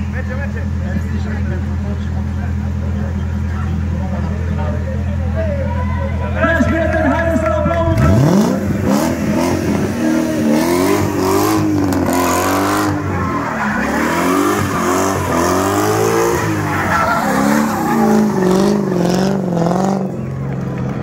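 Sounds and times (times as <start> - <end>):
car engine revving: 7.8 - 21.0
tyres squealing: 12.0 - 19.4.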